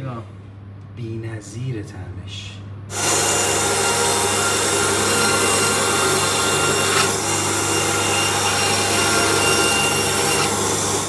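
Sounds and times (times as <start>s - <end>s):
meat bandsaw cutting bone: 2.9s - 11.0s.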